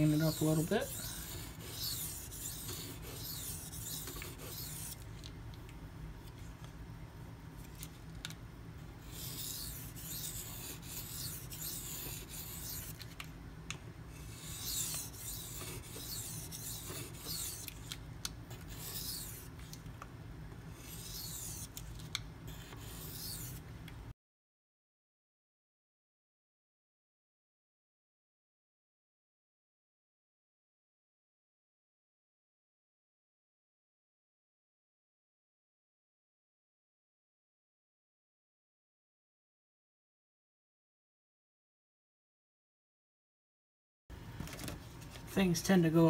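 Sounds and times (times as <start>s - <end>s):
knife scraping on whetstone: 0.0s - 5.0s, 9.1s - 13.2s, 14.2s - 19.7s, 20.7s - 21.9s, 22.5s - 23.6s.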